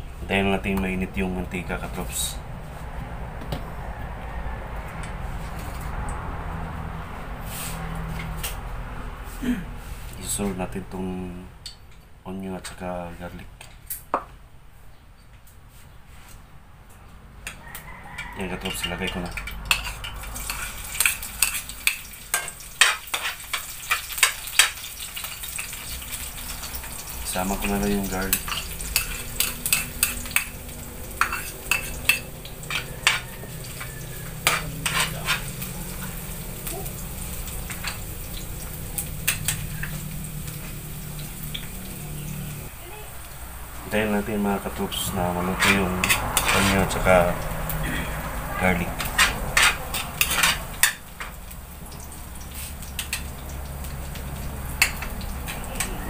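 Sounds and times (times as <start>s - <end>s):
metal spatula scraping a wok: 7.4s - 8.3s, 18.6s - 26.0s, 28.0s - 36.4s, 45.3s - 47.4s, 48.1s - 51.0s
onion and garlic sizzling in oil: 19.0s - 56.0s.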